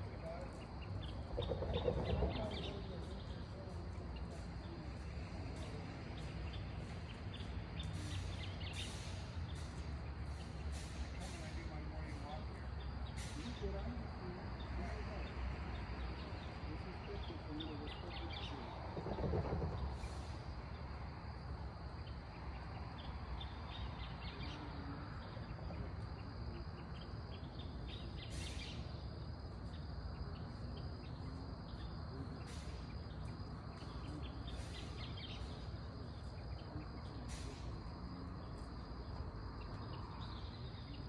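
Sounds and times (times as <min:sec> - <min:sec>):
insects trilling: 0:00.0 - 0:41.0
low rumble: 0:18.5 - 0:20.5.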